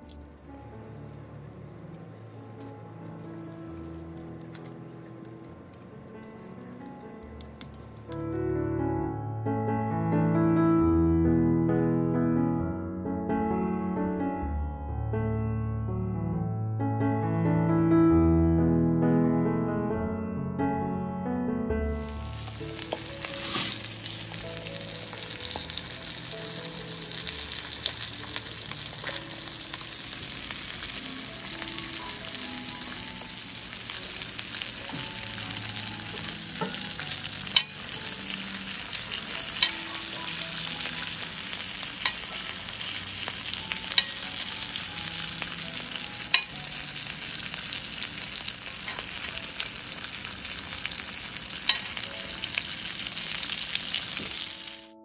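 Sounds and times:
fish sizzling in oil: 0.0 - 8.6, 21.9 - 55.0.

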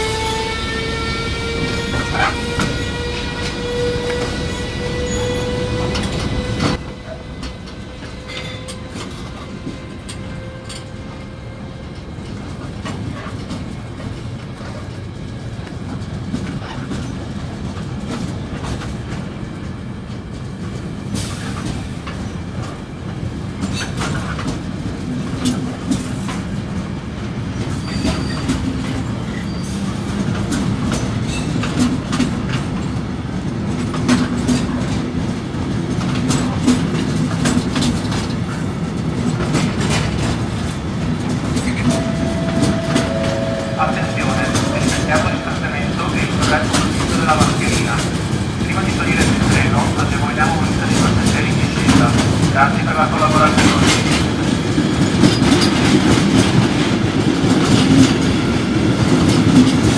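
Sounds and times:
train wheels rumbling on rails: 0.0 - 59.9
wheels clacking over track: 27.6 - 59.9.

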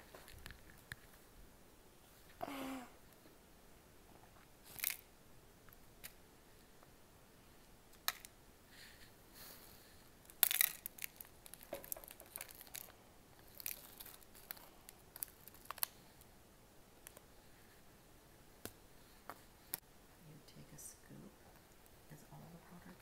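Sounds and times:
candy packet crinkling: 10.2 - 16.1.

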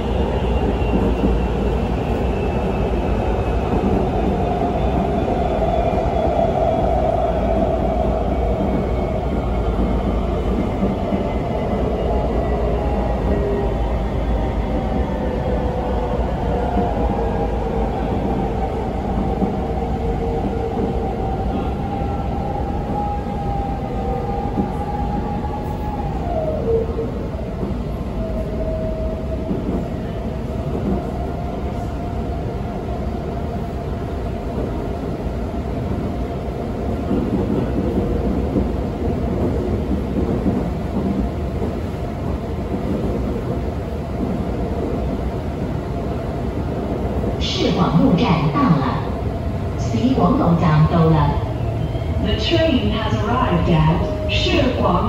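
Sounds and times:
train wheels rumbling on rail: 0.0 - 55.0.

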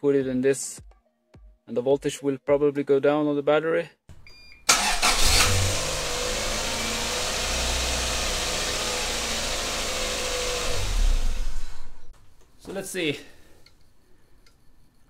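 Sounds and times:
starter motor cranking: 4.7 - 12.1
car engine idling: 4.8 - 12.1.

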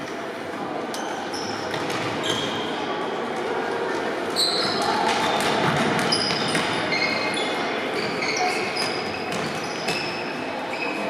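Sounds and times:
shoes squeaking on court floor: 1.2 - 2.8, 4.3 - 11.0.

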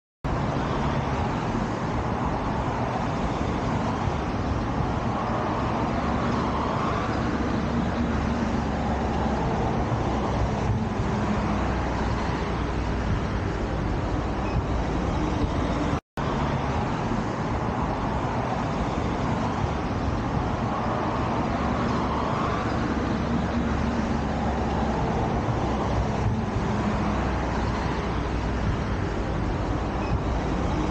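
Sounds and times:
distant road traffic hum: 0.2 - 30.9.

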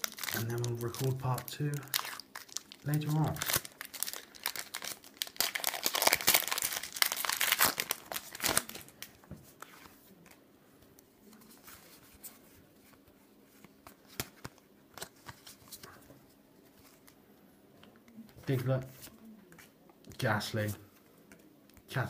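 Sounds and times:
foil wrapper crinkling and tearing: 0.0 - 9.1.

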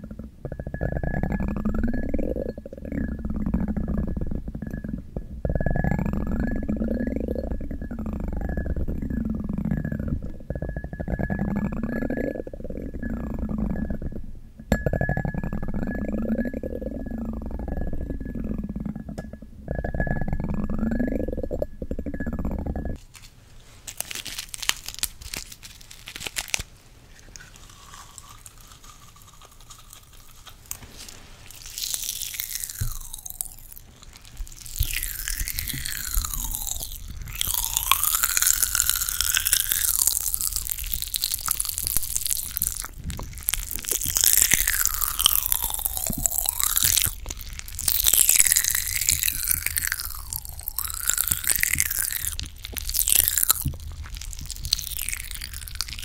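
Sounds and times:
popping candy crackling: 20.2 - 56.0.

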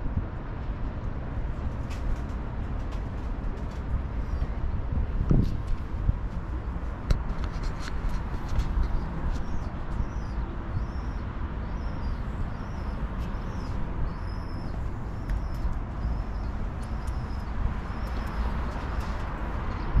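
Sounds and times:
distant city noise: 0.0 - 20.0
wind rumbling: 0.0 - 20.0
small bird chirping: 8.5 - 19.2.

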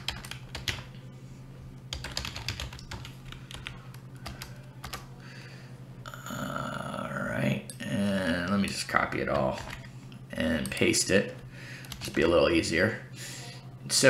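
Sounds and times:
keyboard typing clicks: 0.0 - 0.9, 1.9 - 5.0.

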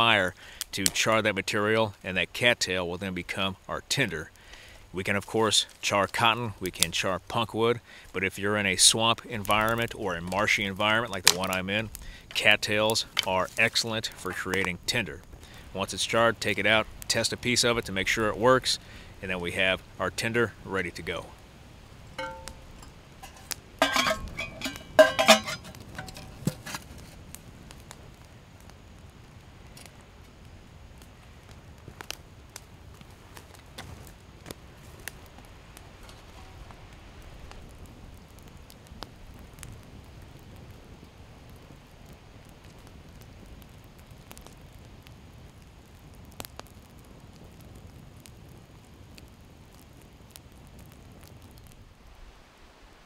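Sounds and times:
steady low background noise: 0.0 - 46.2
campfire crackling and popping: 0.0 - 53.0
light metal taps: 22.2 - 26.6
metal clinking and scraping: 22.2 - 26.9.

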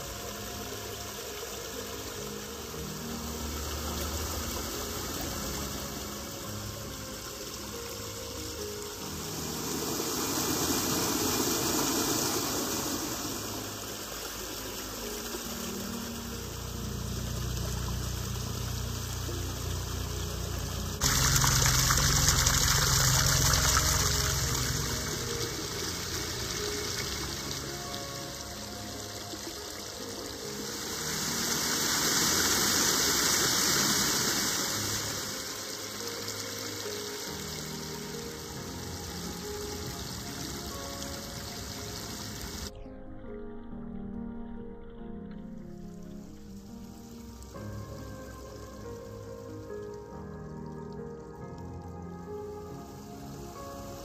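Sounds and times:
stream rushing over stones: 0.0 - 42.7.

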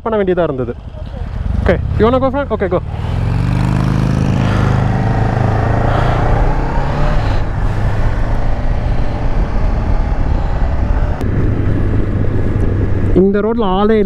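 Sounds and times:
motorcycle engine running: 0.4 - 14.0
wind rush on microphone: 2.8 - 14.0.

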